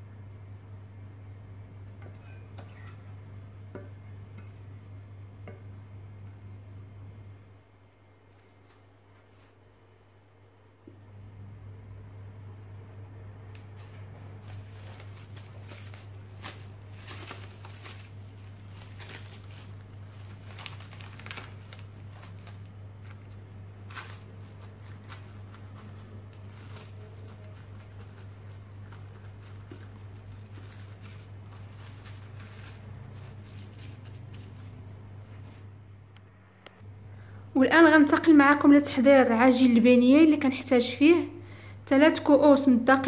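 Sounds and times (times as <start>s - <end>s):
steady low hum: 0.0s - 42.9s
cling film crinkling: 13.6s - 35.7s.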